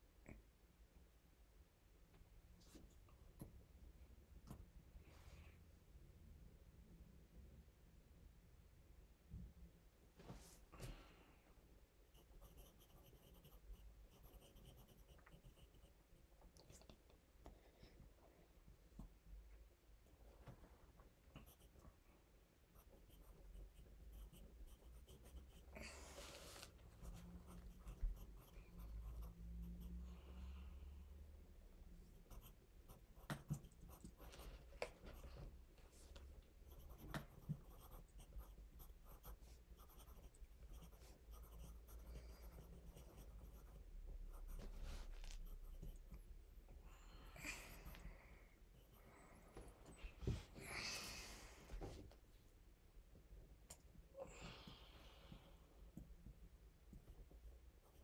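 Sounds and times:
pencil scratching on paper: 0:12.1 - 0:16.0, 0:21.3 - 0:21.8, 0:22.7 - 0:30.0, 0:32.1 - 0:35.4, 0:36.6 - 0:46.2.

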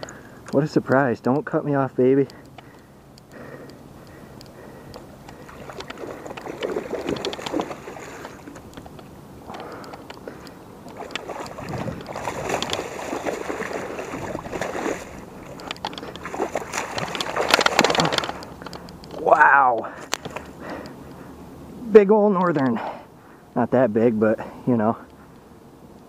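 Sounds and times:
fish thrashing and splashing water: 0:04.2 - 0:08.8, 0:09.6 - 0:18.7.

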